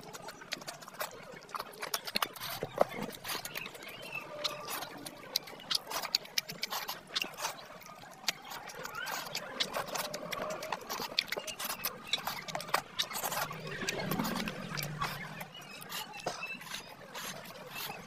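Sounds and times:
wet chewing and lip-smacking: 0:00.0 - 0:18.0
faint squeaky glides: 0:08.4 - 0:18.0.

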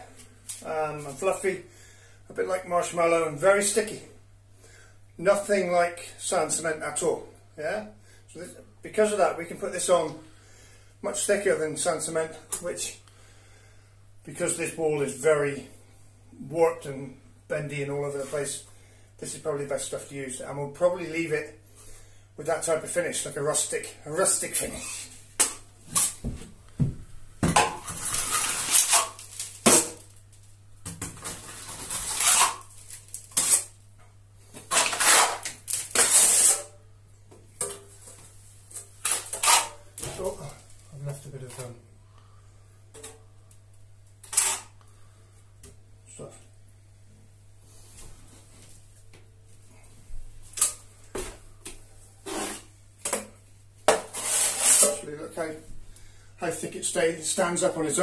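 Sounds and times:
trowel spreading plaster on wall: 0:27.8 - 0:29.9, 0:34.7 - 0:36.7, 0:39.1 - 0:39.8, 0:52.2 - 0:52.7, 0:53.9 - 0:55.0.

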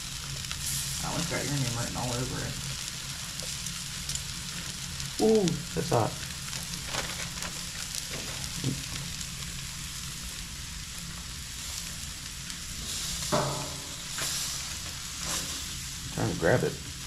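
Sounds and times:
fish sizzling on a grill: 0:00.0 - 0:17.0.

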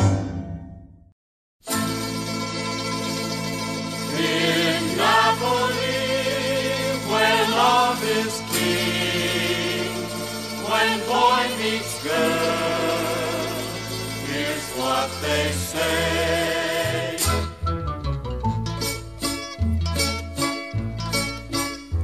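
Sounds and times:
song with held chords and singing: 0:03.8 - 0:18.1.

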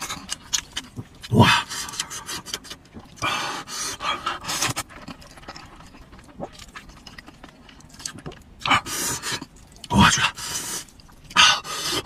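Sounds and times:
man panting and slurping: 0:01.2 - 0:04.9, 0:08.6 - 0:12.0.

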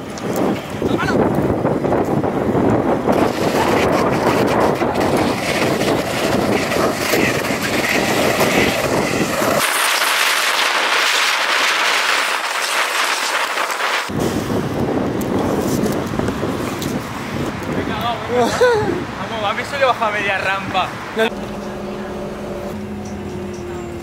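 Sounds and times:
wind on microphone: 0:00.0 - 0:09.8, 0:14.1 - 0:19.2
scooter wheels rolling on pavement: 0:00.0 - 0:18.3, 0:21.2 - 0:24.0.

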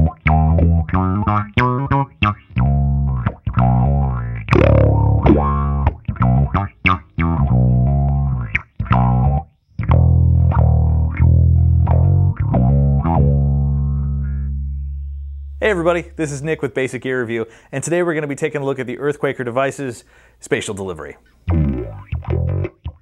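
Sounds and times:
bass guitar with auto-wah: 0:00.0 - 0:16.6, 0:21.4 - 0:23.0.

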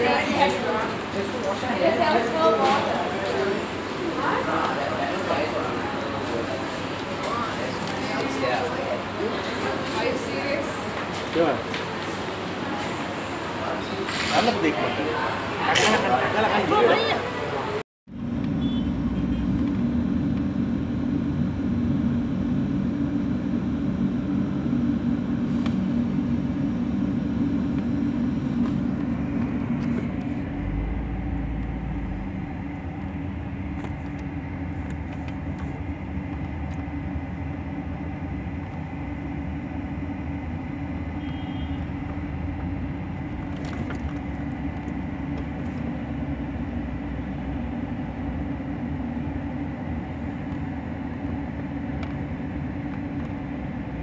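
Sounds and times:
road noise: 0:00.0 - 0:54.0
car engine rumble: 0:18.1 - 0:54.0.

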